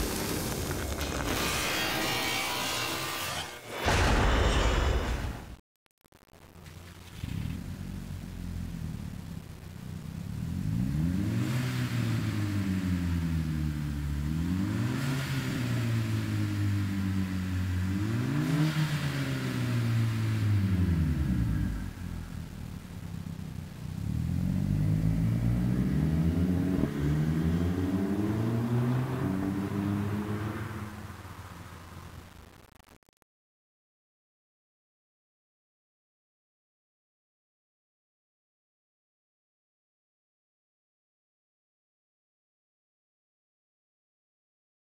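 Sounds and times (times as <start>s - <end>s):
car engine idling and revving: 6.6s - 32.4s
car accelerating away: 10.2s - 22.8s, 23.8s - 31.9s.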